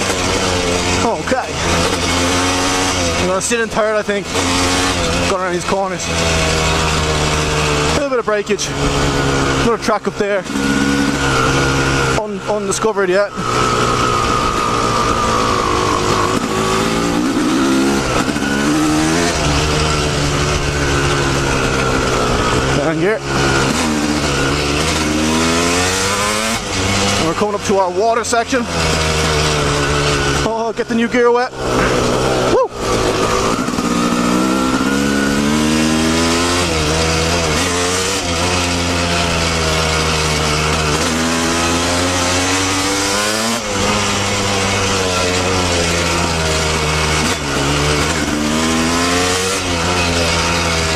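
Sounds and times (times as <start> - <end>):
dirt bike engine revving: 0.0 - 50.9.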